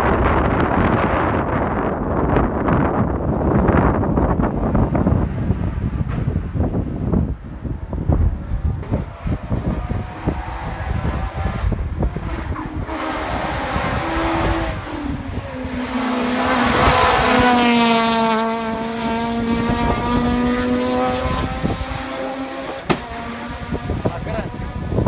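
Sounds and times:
rally car accelerating past: 8.6s - 25.0s.

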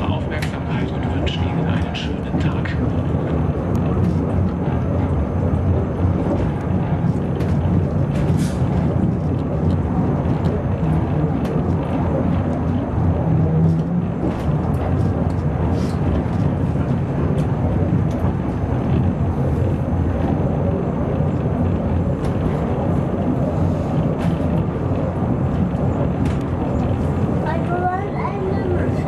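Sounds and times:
funicular car rumbling on track: 0.0s - 29.0s.

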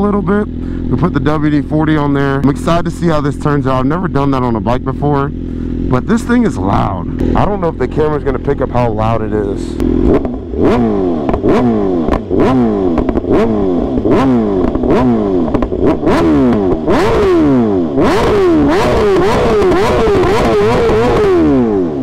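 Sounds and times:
motorcycle engine revving: 0.0s - 22.0s
exhaust pops and cracks: 11.2s - 14.9s, 15.5s - 15.9s.

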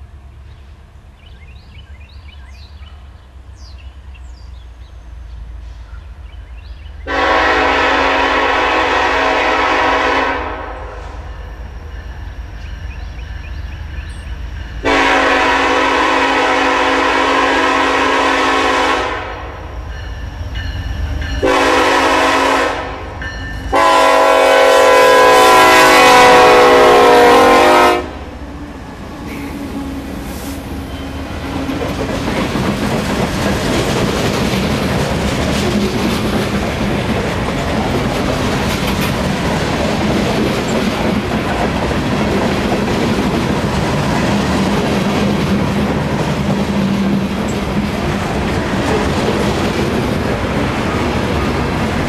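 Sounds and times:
diesel locomotive rumble: 0.0s - 52.0s
train air horn blasts: 7.1s - 11.3s, 14.8s - 19.7s, 21.4s - 28.4s.

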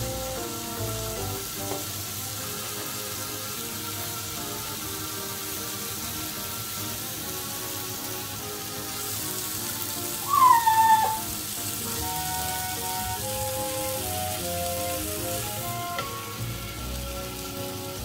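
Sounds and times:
background music: 0.0s - 18.0s
meat sizzling on grill: 0.0s - 18.0s
dog whining: 10.2s - 11.4s.

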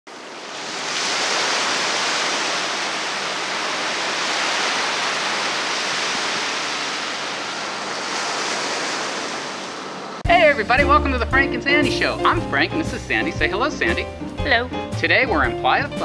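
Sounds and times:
steady rushing noise: 0.1s - 10.3s.

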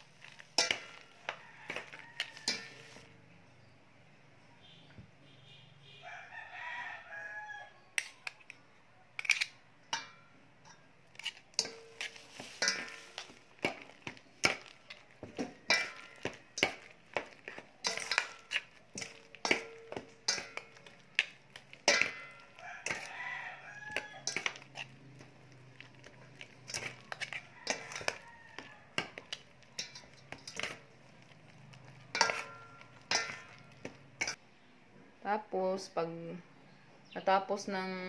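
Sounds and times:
metal spoons scraping a steel bowl: 0.0s - 3.1s, 9.2s - 34.4s
rooster crowing: 0.9s - 3.0s, 6.0s - 7.9s, 22.3s - 24.6s, 27.1s - 29.2s
metal bowl ringing: 21.9s - 22.5s, 29.8s - 30.8s, 32.1s - 34.4s.

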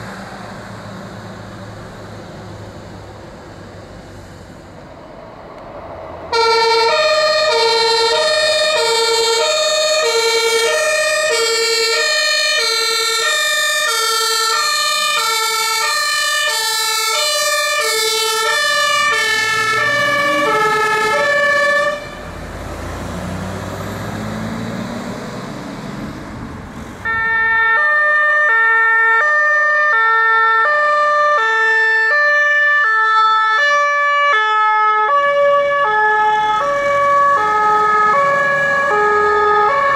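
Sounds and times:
truck engine pulling away: 0.0s - 27.2s, 35.5s - 39.9s
two-tone fire engine horn: 6.3s - 22.4s, 27.0s - 39.9s.

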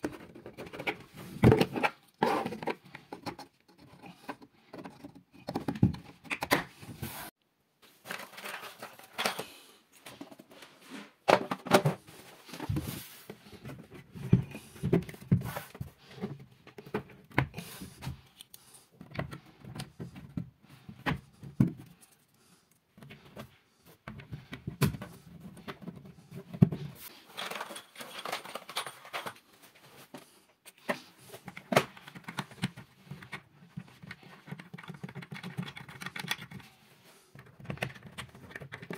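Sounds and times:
plastic parts tapping and clicking: 23.0s - 29.4s, 30.7s - 36.7s, 37.3s - 38.9s.

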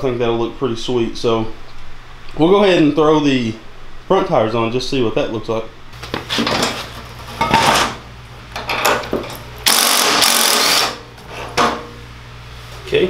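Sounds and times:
impact wrench hammering: 8.6s - 11.0s.

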